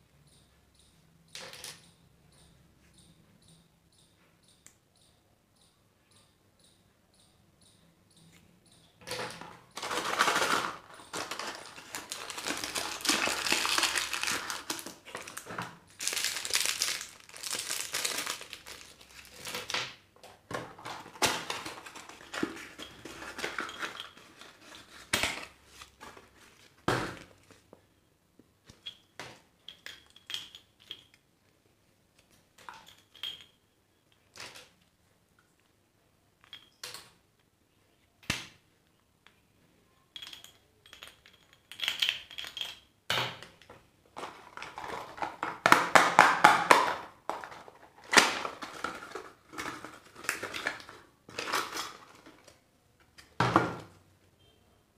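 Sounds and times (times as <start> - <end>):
packaging rustling and crinkling: 9.8 - 19.8, 20.8 - 26.8, 44.2 - 52.6.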